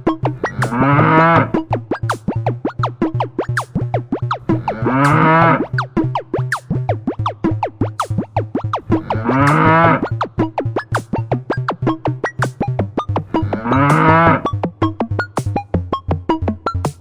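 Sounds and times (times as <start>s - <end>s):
electronic dance music: 0.4s - 1.6s, 4.4s - 5.7s, 8.8s - 10.1s, 13.4s - 14.5s
cow mooing: 0.6s - 1.6s, 4.6s - 5.6s, 9.0s - 10.0s, 13.4s - 14.5s.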